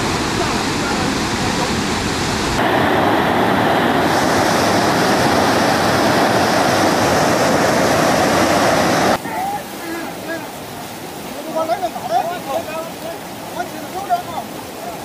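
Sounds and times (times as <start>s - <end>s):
flood torrent rushing: 0.0s - 15.0s.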